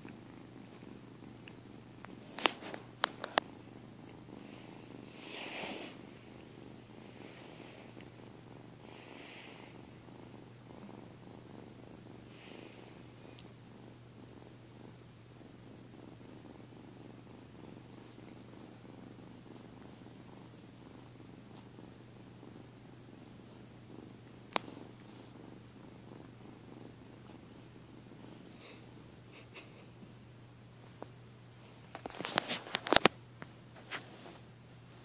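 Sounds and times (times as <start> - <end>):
soft rustling: 0.0 - 9.0, 15.6 - 29.1, 30.8 - 35.0
cat purring: 0.0 - 33.1.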